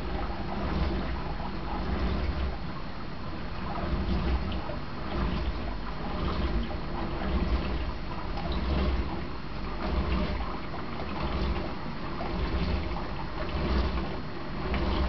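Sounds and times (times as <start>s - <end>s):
aquarium water circulating: 0.0s - 15.0s
water trickling: 0.0s - 15.0s.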